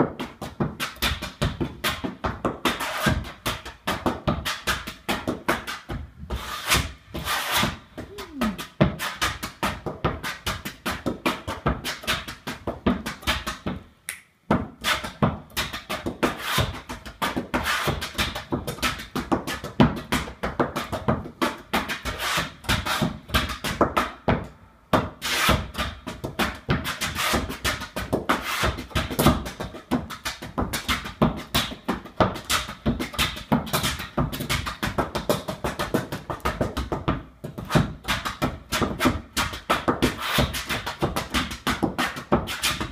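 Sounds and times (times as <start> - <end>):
hard-soled shoes tapping and stamping: 0.0 - 42.9.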